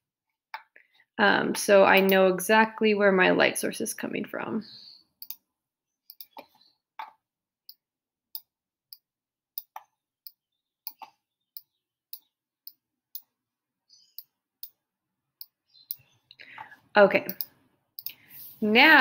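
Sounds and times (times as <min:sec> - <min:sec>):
computer mouse clicks: 0:05.2 - 0:05.4, 0:06.1 - 0:06.5, 0:17.2 - 0:18.2.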